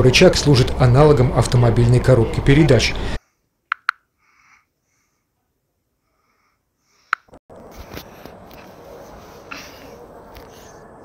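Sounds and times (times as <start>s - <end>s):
sharp clicks: 3.7s - 4.0s.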